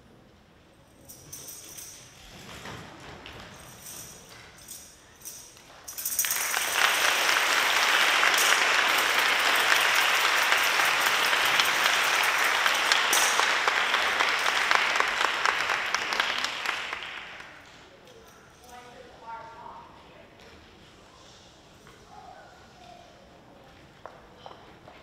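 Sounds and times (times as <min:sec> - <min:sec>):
audience applauding: 0:06.2 - 0:17.7.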